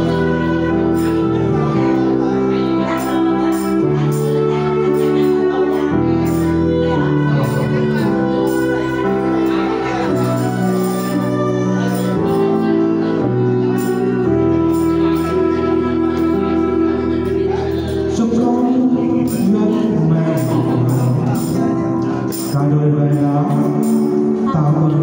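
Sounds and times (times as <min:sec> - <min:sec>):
tambourine shaken and struck: 0:00.0 - 0:16.6, 0:17.3 - 0:24.4
electronic keyboard chords: 0:00.0 - 0:25.0
man and woman singing duet: 0:15.4 - 0:25.0.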